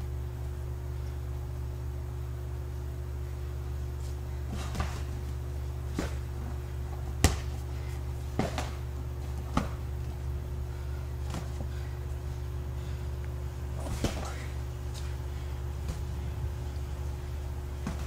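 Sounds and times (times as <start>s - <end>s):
steady low hum: 0.0s - 18.0s
boxing gloves punching: 4.5s - 10.1s, 17.7s - 18.0s.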